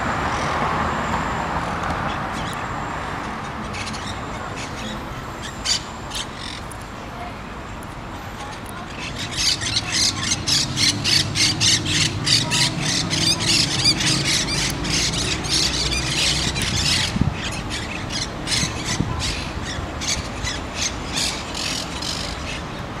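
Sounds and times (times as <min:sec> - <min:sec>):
parakeets squawking: 0:03.5 - 0:06.6, 0:08.9 - 0:22.7.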